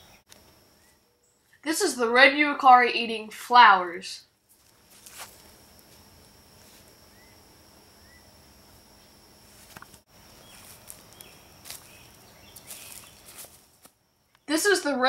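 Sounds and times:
footsteps on forest floor: 4.4s - 7.0s, 9.5s - 14.0s
bird chirps: 10.4s - 13.4s.

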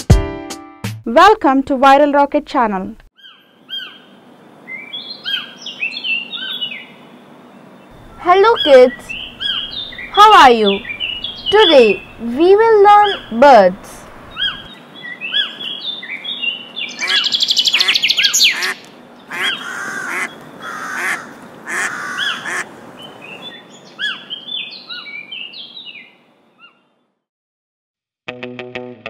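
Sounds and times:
harsh bird calls: 3.2s - 27.0s
birds chirping and twittering: 3.2s - 27.2s
fast bird trill: 8.0s - 12.3s, 12.9s - 13.7s, 14.3s - 22.6s.

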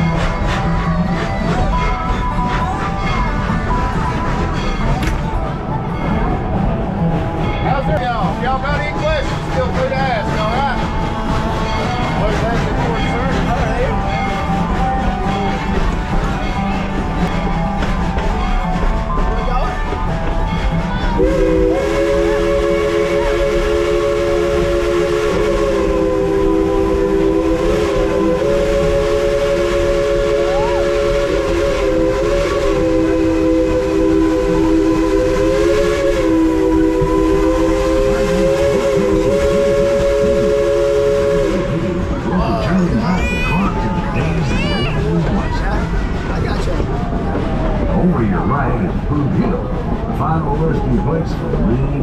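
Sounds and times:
low train rumble: 0.0s - 52.0s
steam locomotive chime whistle: 10.5s - 43.0s.

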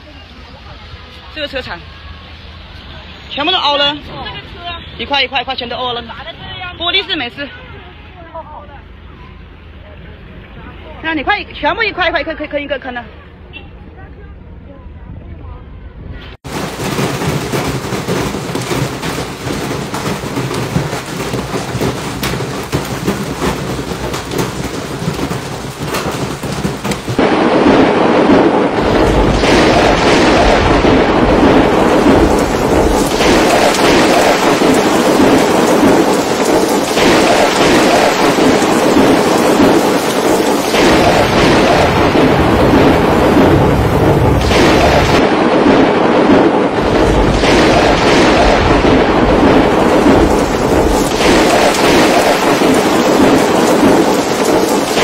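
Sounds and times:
hailstones hitting pavement and cars: 16.4s - 55.0s.

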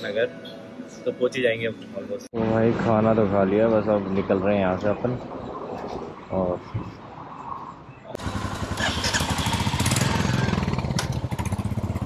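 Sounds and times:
motorcycle engine running: 8.2s - 12.0s.

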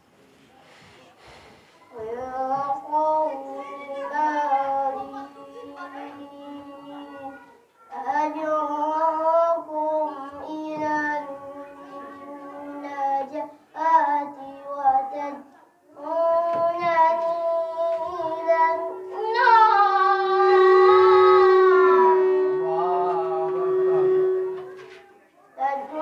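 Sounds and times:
boy chanting through microphone: 0.7s - 26.0s
steady tone: 18.0s - 24.8s.

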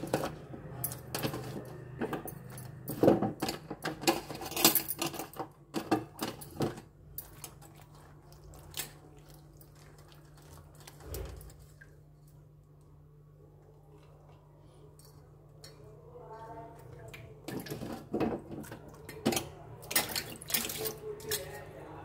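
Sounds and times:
water splashing in a steel bowl: 6.9s - 12.5s, 16.4s - 21.6s.

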